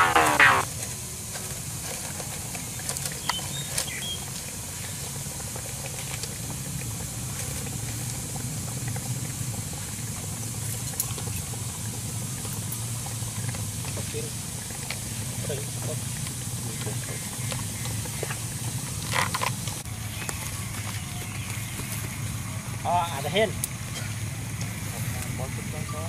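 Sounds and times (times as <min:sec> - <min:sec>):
low hum: 0:00.0 - 0:00.6
outdoor background hiss: 0:00.0 - 0:26.0.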